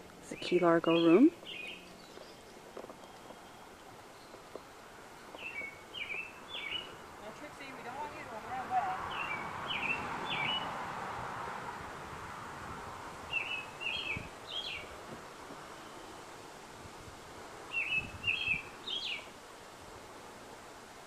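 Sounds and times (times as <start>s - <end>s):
songbird chirping: 0.0s - 10.8s, 13.2s - 16.4s, 17.7s - 19.3s
faint outdoor hiss: 0.0s - 21.0s.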